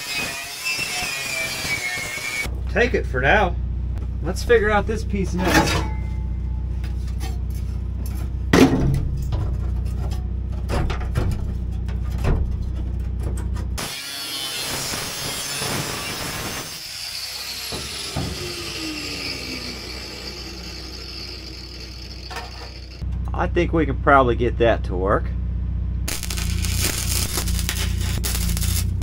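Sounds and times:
angle grinder cutting steel: 0:00.0 - 0:02.5, 0:13.8 - 0:23.0, 0:26.1 - 0:29.0
low hum: 0:02.4 - 0:13.8, 0:17.6 - 0:24.1, 0:24.7 - 0:29.0.

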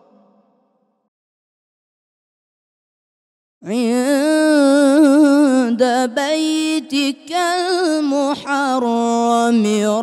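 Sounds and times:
man chanting into a microphone: 0:03.6 - 0:10.0.

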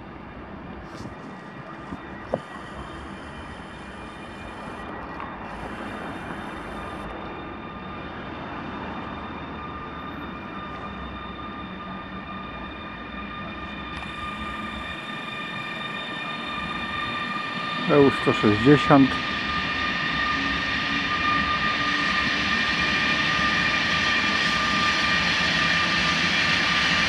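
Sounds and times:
high electric whine: 0:00.9 - 0:07.8, 0:12.8 - 0:19.3.

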